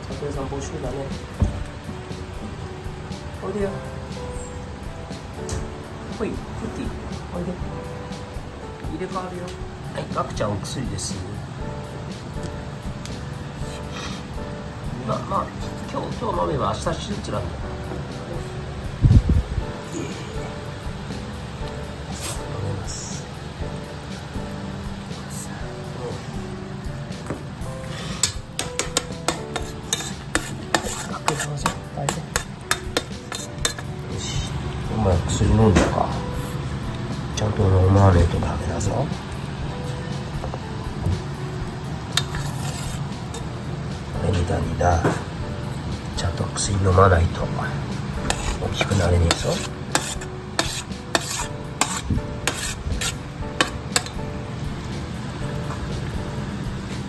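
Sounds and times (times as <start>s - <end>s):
faint background music: 0.0s - 57.0s
fork clinking on metal tray: 28.2s - 33.9s, 42.2s - 43.4s.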